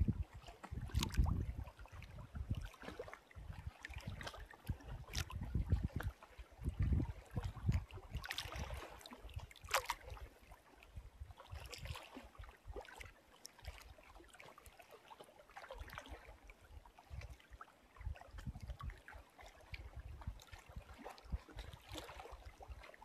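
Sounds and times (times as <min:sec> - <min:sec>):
wind rumble on microphone: 0:00.0 - 0:13.8, 0:16.1 - 0:17.4, 0:18.0 - 0:23.0
small waves lapping and splashing: 0:00.0 - 0:23.0.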